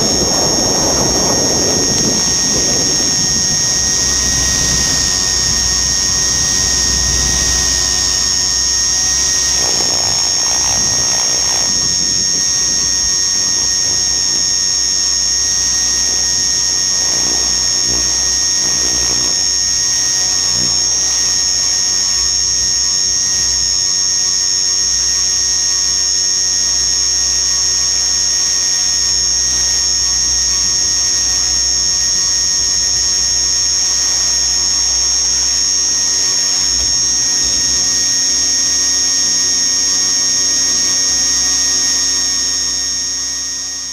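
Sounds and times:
wind rumbling on microphone: 0.0 - 13.0
helicopter motor high-pitched whine: 0.0 - 43.9.

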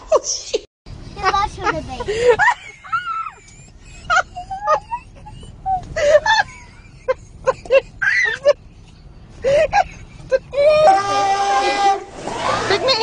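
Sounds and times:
child squealing and whimpering: 10.5 - 13.0.

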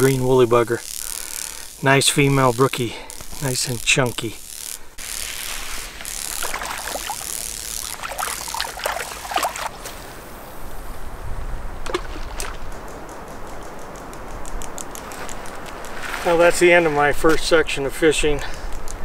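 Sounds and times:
water splashing and trickling: 6.2 - 9.9
sharp clicks: 12.4 - 16.0.

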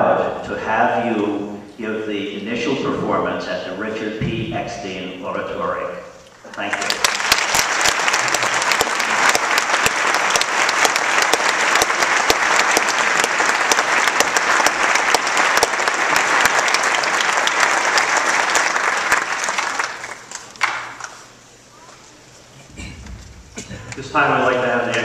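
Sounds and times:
sharp claps close by: 6.5 - 21.2
audience applauding: 6.5 - 21.3, 22.8 - 25.0.

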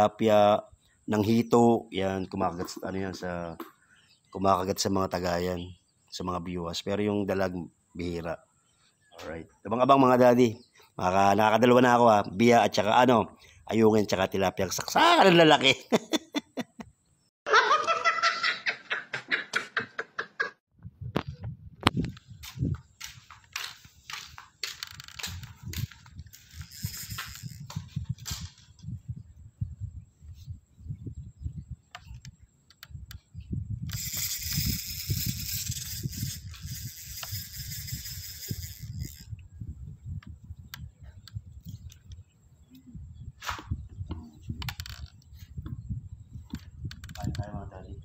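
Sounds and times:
man laughing hard: 15.5 - 16.9, 17.5 - 20.6
wind buffeting microphone: 20.7 - 48.0.

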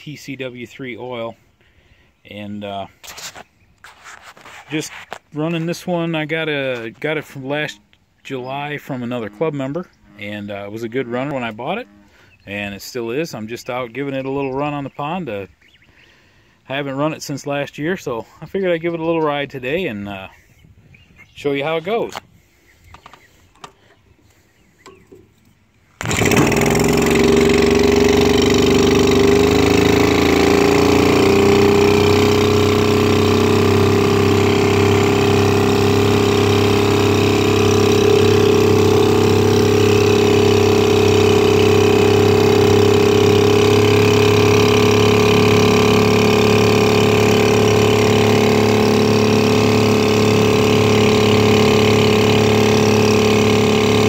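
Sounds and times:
outboard motor running: 0.0 - 20.5, 21.4 - 54.0
faint handling sounds: 3.0 - 5.4.

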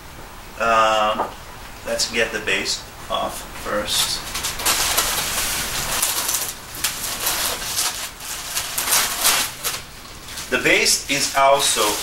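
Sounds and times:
polystyrene foam scraping and crackling: 3.8 - 12.0.

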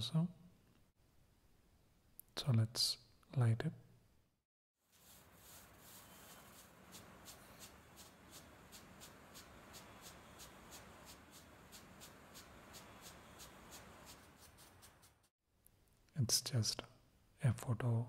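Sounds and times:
firework sparks hissing: 4.9 - 15.3.

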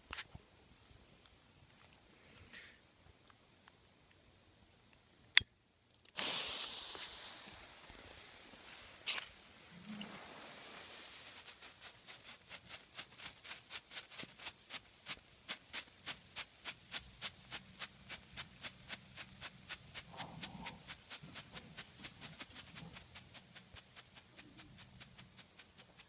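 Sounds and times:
strobe firework popping: 6.0 - 14.6.

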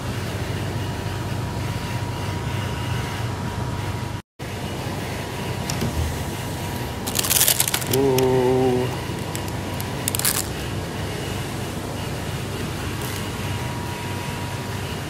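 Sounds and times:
freezer background hum: 0.0 - 15.0
plastic packaging crinkling: 7.0 - 10.6.

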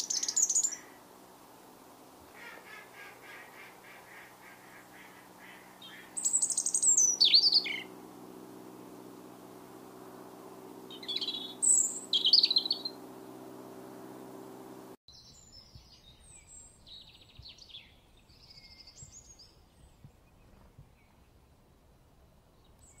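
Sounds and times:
robin singing: 0.0 - 1.1, 2.4 - 8.0, 10.7 - 14.3
small birds chirping: 0.0 - 1.1, 2.3 - 8.2, 9.7 - 21.3
steady low hum: 0.0 - 15.0.

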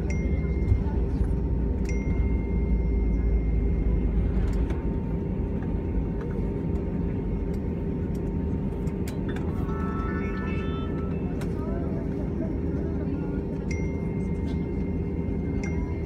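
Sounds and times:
low rumble of jet engines: 0.0 - 16.0
steady cabin hum: 0.0 - 16.0.

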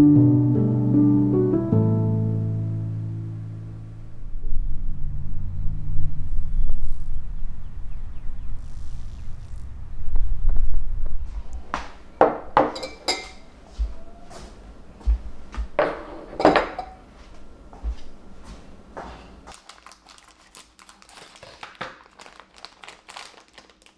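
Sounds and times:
low rumble: 2.4 - 12.2, 13.3 - 15.8
glass jars clinking on a table: 12.2 - 13.4, 15.8 - 17.0.

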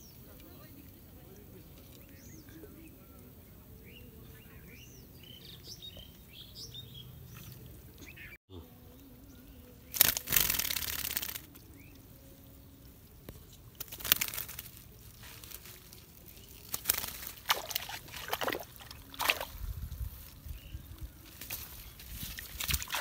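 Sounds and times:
water splashing and sloshing: 16.8 - 19.7, 22.2 - 23.0.

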